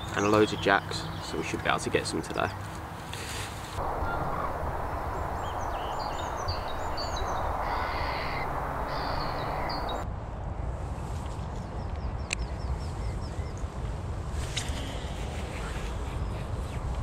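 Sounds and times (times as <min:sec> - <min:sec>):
songbirds chirping: 0:00.0 - 0:03.0, 0:03.8 - 0:10.0
wind on microphone: 0:03.8 - 0:17.0.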